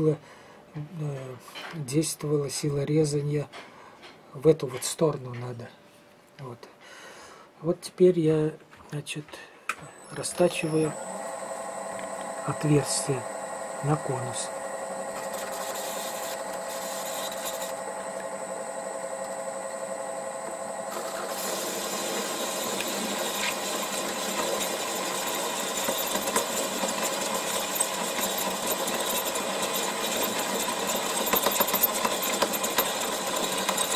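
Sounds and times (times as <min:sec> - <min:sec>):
lathe gear whine: 0:09.9 - 0:33.9.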